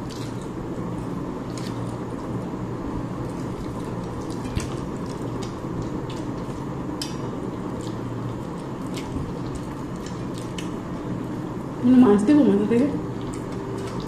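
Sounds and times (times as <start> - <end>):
chewing and lip smacking: 0.0 - 0.6, 3.2 - 11.1, 13.1 - 14.0
steady low hum: 0.0 - 14.0.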